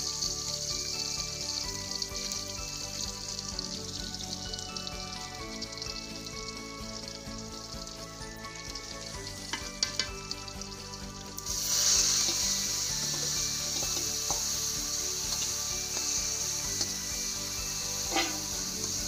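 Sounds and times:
vegetables sizzling in hot oil: 0.0 - 19.0
metal spatula clinking on bowl: 18.1 - 18.5.

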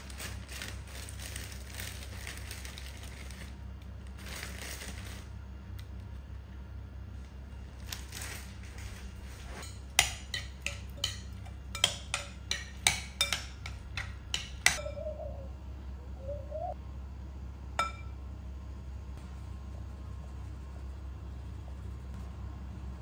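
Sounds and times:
low hum: 0.0 - 23.0
kitchenware clinking: 9.5 - 15.1, 17.8 - 18.2.

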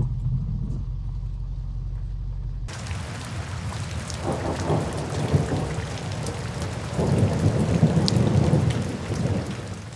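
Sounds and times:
low rolling thunder: 2.7 - 9.9
rain hiss: 2.7 - 9.9.

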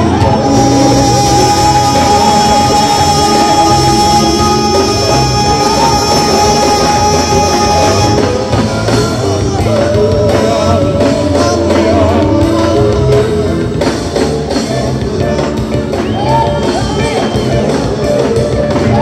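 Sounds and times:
group singing into microphones: 0.0 - 15.4
live band: 0.0 - 19.0
steady drum beat: 0.0 - 19.0.

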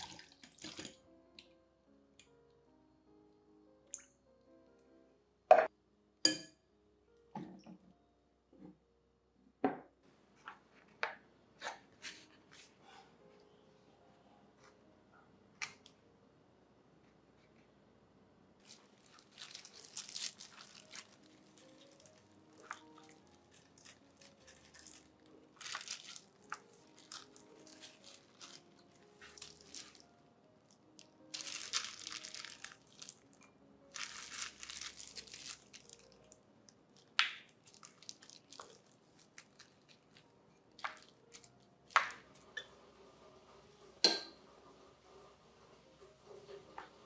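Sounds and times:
soft background music: 0.0 - 47.0
plastic gloves crinkling: 18.6 - 42.3.

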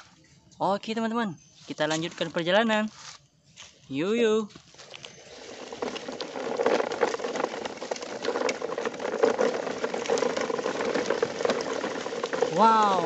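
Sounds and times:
toy truck wheels on gravel: 4.5 - 13.0.

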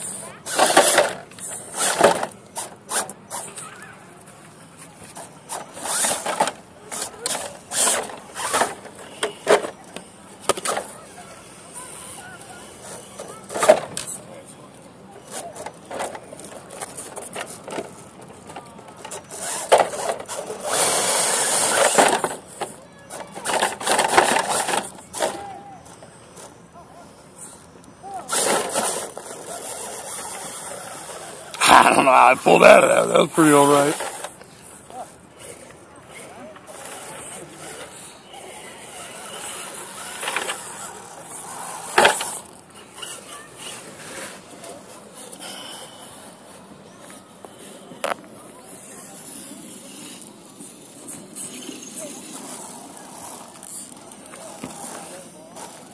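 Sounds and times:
toy car scraping over rocks: 0.0 - 3.8, 5.0 - 14.4, 15.2 - 45.5, 46.3 - 55.9.

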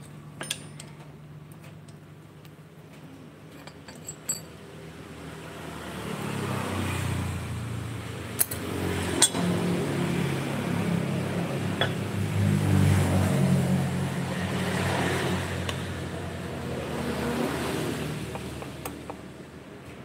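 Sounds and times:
sharp metallic clinks: 3.6 - 4.6.

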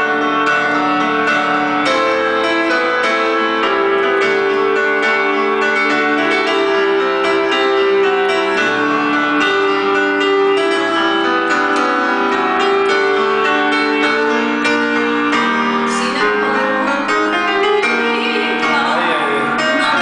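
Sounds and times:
electronic keyboard piano music: 0.0 - 20.0.

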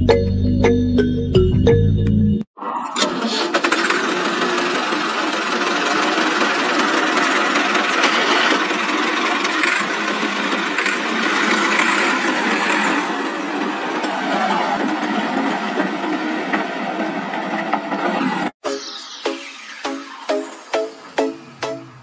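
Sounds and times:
toy tractor motor whirring: 3.0 - 13.4.

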